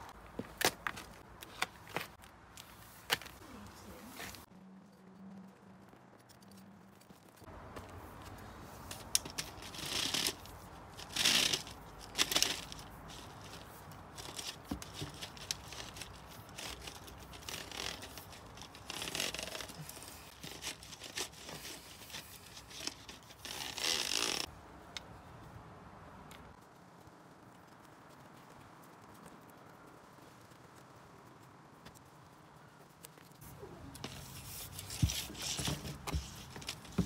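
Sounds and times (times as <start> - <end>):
cable scraping against duct: 8.9 - 24.5.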